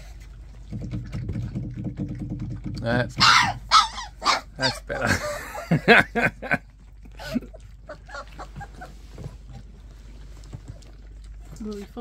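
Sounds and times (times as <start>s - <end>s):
puppies yapping: 3.1s - 6.0s, 7.2s - 9.5s
puppies whimpering and squeaking: 3.2s - 5.1s, 7.5s - 11.1s.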